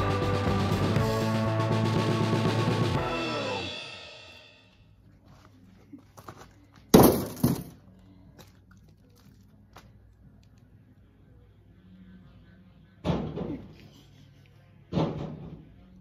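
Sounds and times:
background music: 0:00.0 - 0:05.0
concrete block crashing into wheelbarrow: 0:06.9 - 0:07.8.

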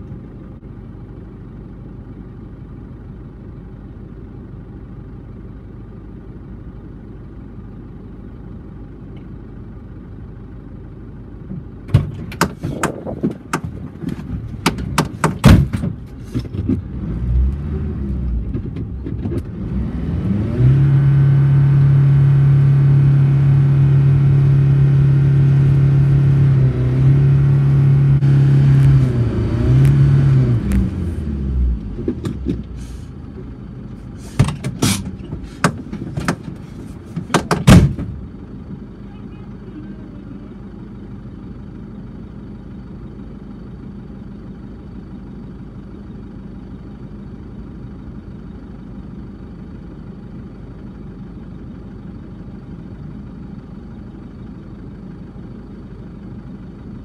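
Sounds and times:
car engine revving under load: 0:11.8 - 0:38.5
sharp knocks and crunches: 0:11.9 - 0:16.9.

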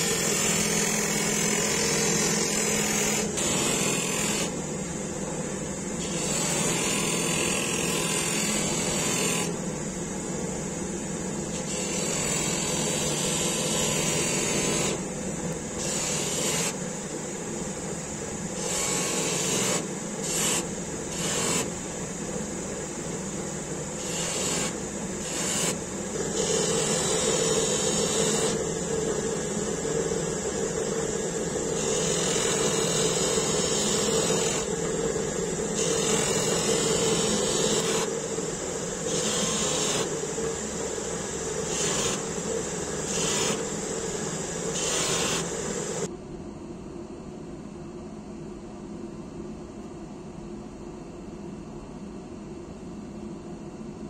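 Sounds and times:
bench grinder motor humming: 0:00.0 - 0:04.6, 0:06.0 - 0:09.6, 0:18.6 - 0:21.8, 0:24.0 - 0:29.4, 0:31.6 - 0:38.2, 0:39.0 - 0:40.6, 0:41.5 - 0:46.1
steel grinding hiss: 0:23.2 - 0:28.8, 0:35.6 - 0:46.1.

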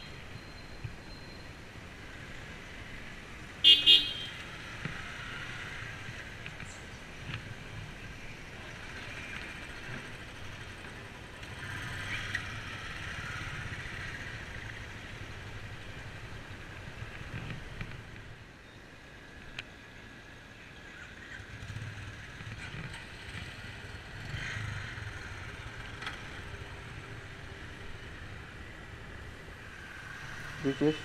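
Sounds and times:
low hum of traffic: 0:00.0 - 0:31.0
motorcycle horn toots: 0:03.6 - 0:04.4.

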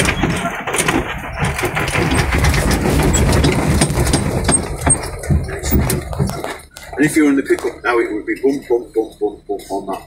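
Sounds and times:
vehicle body knocks and rattles: 0:00.0 - 0:06.9
diesel engine at low revs: 0:00.0 - 0:09.8.

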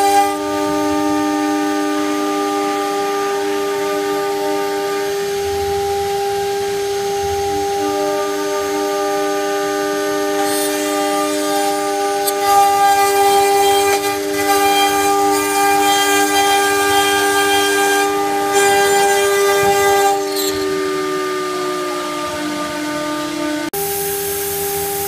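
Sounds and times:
router spindle whining: 0:00.0 - 0:25.0
harsh cutting hiss: 0:05.4 - 0:21.6.

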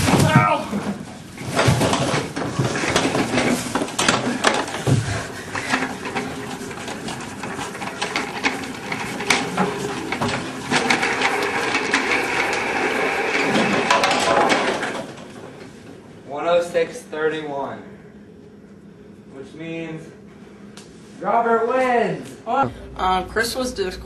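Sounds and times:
office chair rattling while rolling: 0:00.0 - 0:15.7
steady higher-pitched sound: 0:22.6 - 0:24.0.

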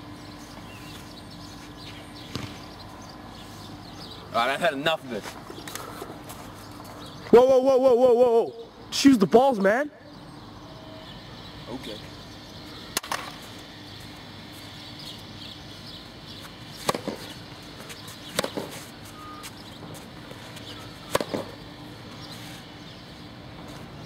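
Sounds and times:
faint steady hum: 0:00.0 - 0:24.0
tennis ball struck with racket: 0:16.8 - 0:17.3, 0:18.3 - 0:18.8, 0:21.1 - 0:21.6.

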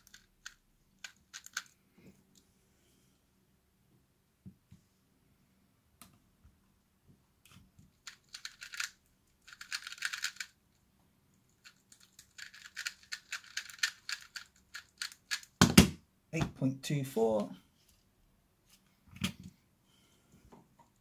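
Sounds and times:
puzzle cube clicking: 0:00.0 - 0:01.7, 0:08.0 - 0:10.6, 0:11.6 - 0:15.6.

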